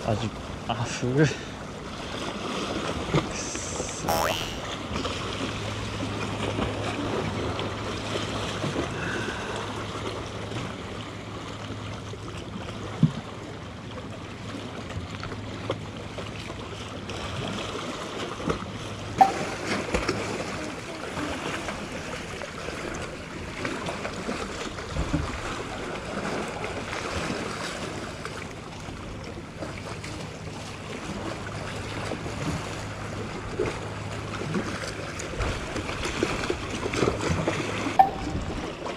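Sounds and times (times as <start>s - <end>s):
low steady hum: 18.9s - 20.3s, 38.0s - 38.9s.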